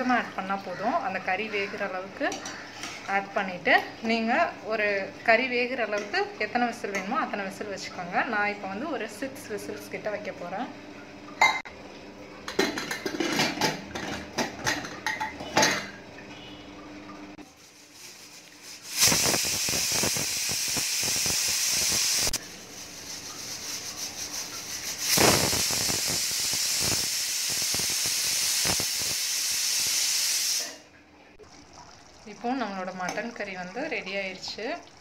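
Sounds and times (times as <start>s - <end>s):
pressure cooker whistle hissing: 18.8s - 22.4s, 23.0s - 30.8s.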